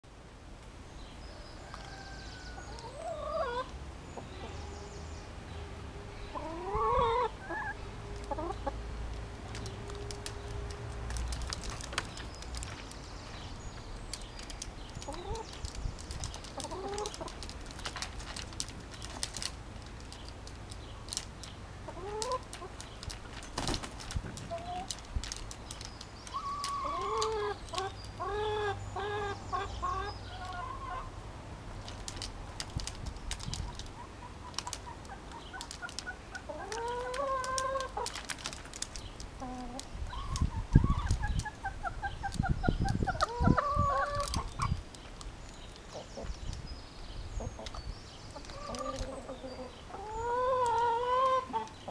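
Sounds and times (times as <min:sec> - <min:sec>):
hens clucking: 0:01.7 - 0:04.8, 0:06.3 - 0:12.3, 0:14.2 - 0:18.4, 0:21.9 - 0:25.0, 0:25.7 - 0:31.2, 0:33.5 - 0:38.6, 0:39.4 - 0:44.8, 0:47.4 - 0:51.9.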